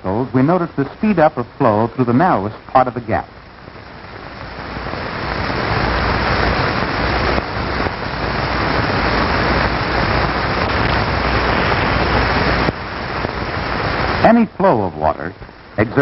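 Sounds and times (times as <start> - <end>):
water rushing: 4.4 - 16.0.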